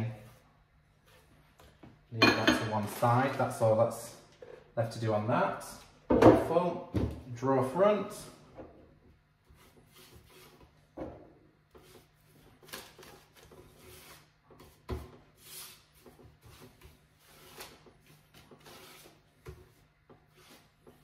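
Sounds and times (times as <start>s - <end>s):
brush swishing on paper: 9.5s - 10.7s.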